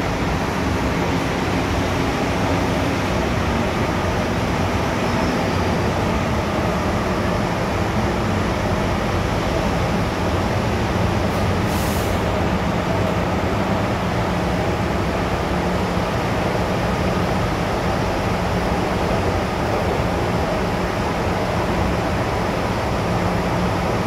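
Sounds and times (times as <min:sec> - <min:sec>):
train wheels rumbling on rail: 0:00.0 - 0:24.0
brief high hiss: 0:11.3 - 0:12.3.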